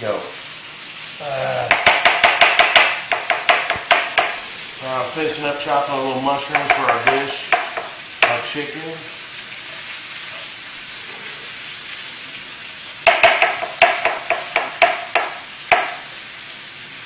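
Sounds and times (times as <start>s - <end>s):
chicken sizzling in a pan: 0.0s - 17.0s
knife chopping on cutting board: 1.7s - 4.4s, 6.5s - 8.4s, 13.1s - 16.0s.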